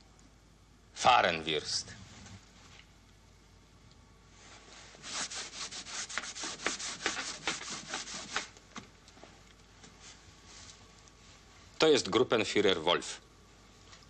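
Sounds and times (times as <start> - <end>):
blackboard wiping strokes: 4.4 - 8.5.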